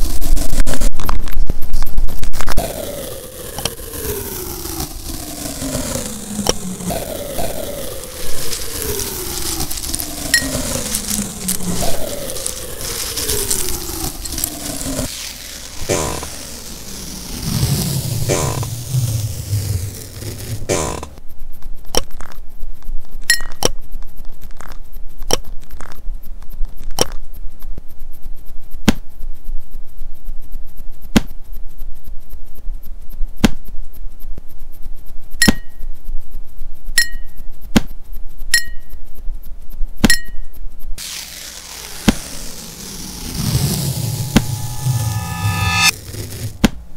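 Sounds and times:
hissing wash: 2.6 - 20.7, 41.0 - 45.9.

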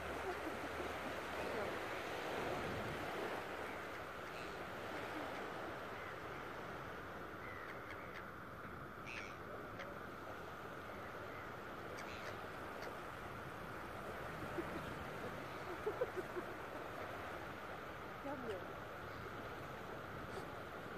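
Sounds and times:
surf washing on shore: 0.0 - 20.9
wind: 0.0 - 20.9
gull calls: 9.0 - 10.0, 11.9 - 13.0.

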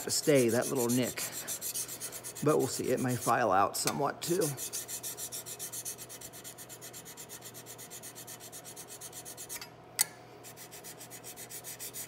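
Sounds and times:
file scraping steel: 0.0 - 3.4, 4.3 - 9.7, 10.4 - 12.0.

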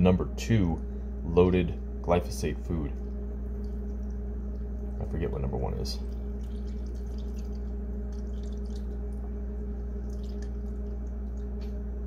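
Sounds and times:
steady low hum: 0.0 - 12.0
milk pouring into a bowl: 6.0 - 11.8.

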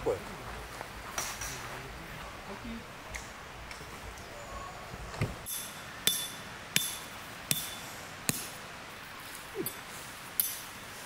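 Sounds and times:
hammer striking metal tent peg: 5.4 - 8.6, 10.4 - 10.7.

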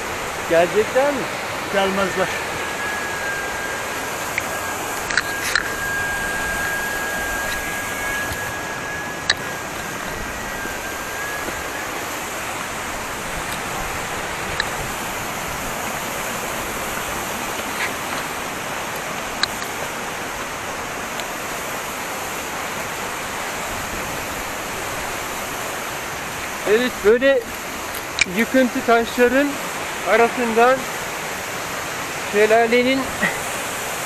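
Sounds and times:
waterfall rushing: 0.0 - 34.0
sharp clicks: 4.3 - 5.7, 9.2 - 9.5.

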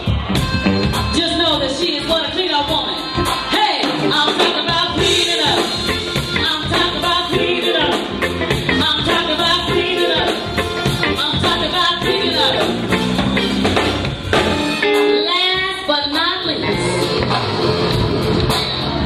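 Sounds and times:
bass guitar: 0.0 - 19.0
drum kit: 0.0 - 19.0
person singing: 3.2 - 12.9.

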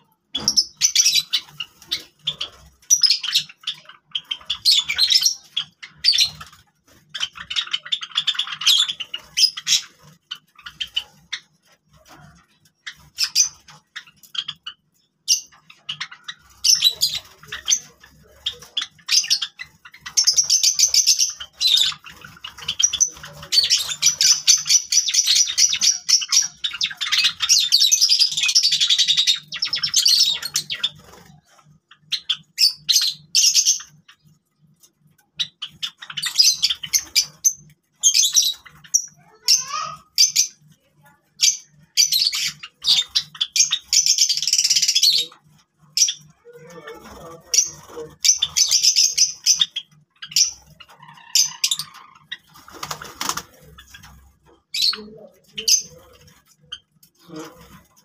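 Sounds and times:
sparrows chirping: 0.0 - 58.0.

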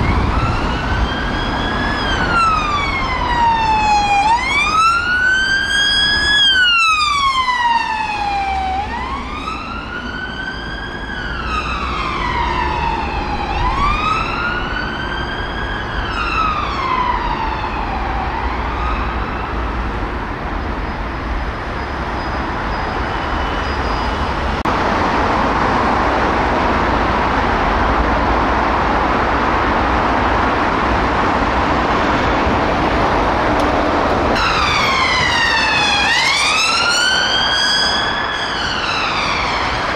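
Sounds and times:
police siren wailing: 0.0 - 19.8, 31.4 - 39.9
road traffic noise: 0.0 - 39.9.

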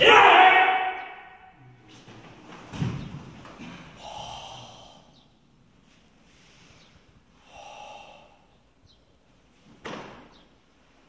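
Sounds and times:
body thudding on floor: 2.5 - 3.6
forceful breathy exhalations: 3.6 - 5.2, 6.2 - 8.6.

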